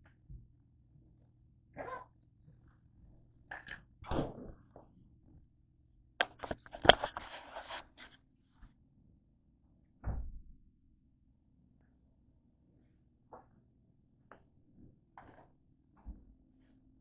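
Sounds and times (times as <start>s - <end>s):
camera handling clicks and knocks: 6.2s - 7.3s.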